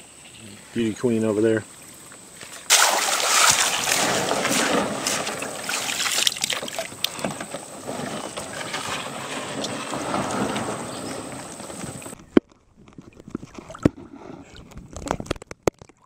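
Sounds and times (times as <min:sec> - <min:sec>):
paddle splashes: 0:02.6 - 0:12.2
water rushing: 0:02.7 - 0:12.2.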